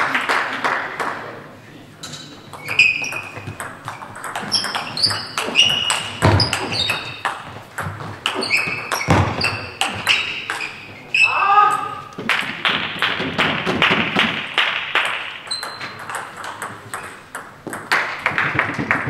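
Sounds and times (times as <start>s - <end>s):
ball clicking off bats: 2.0s - 10.7s, 12.1s - 19.0s
ball pinging on table: 2.0s - 10.7s, 15.0s - 19.0s.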